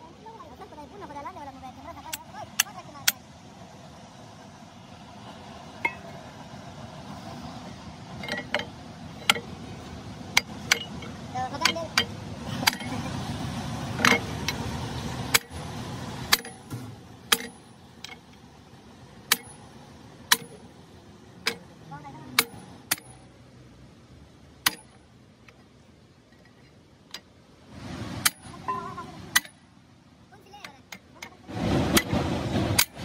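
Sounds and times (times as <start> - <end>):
hammer clanking on metal: 10.3 - 12.9, 16.3 - 18.2, 19.3 - 19.6, 20.3 - 20.6, 24.6 - 25.0.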